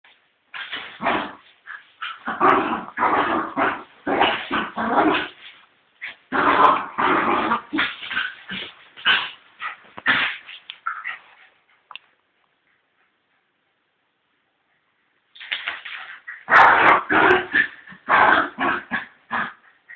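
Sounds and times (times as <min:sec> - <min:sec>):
dog growling and yipping: 0:00.6 - 0:05.5, 0:06.1 - 0:09.4, 0:16.1 - 0:19.7.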